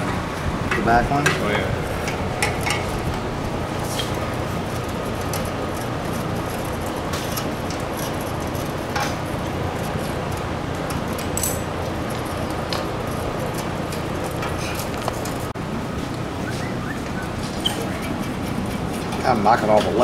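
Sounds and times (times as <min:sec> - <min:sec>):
steady background hum: 0:00.0 - 0:20.0
hand tools clinking on metal: 0:11.1 - 0:12.9.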